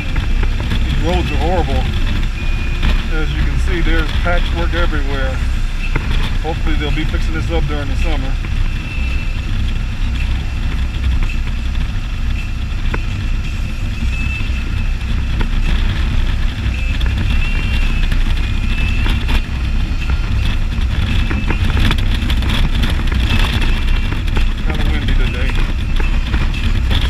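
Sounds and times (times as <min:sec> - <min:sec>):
motorcycle engine running: 0:00.0 - 0:27.0
road noise: 0:00.0 - 0:27.0
wheels knocking over bumps: 0:00.0 - 0:27.0.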